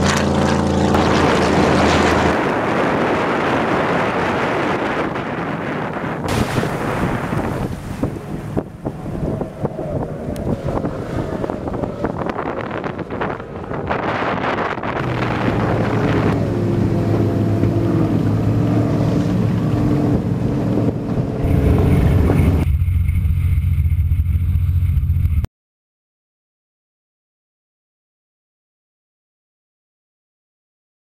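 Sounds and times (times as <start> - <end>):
rushing water: 0.0 - 22.7
wind buffeting microphone: 0.0 - 23.2
motorboat engines running: 0.0 - 25.4.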